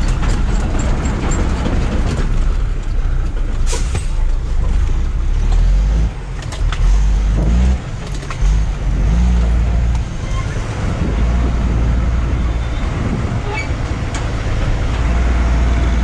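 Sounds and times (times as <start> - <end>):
rattles and clicks in cab: 0.0 - 7.1, 7.8 - 8.8, 13.4 - 15.1
truck diesel engine running: 0.0 - 16.0.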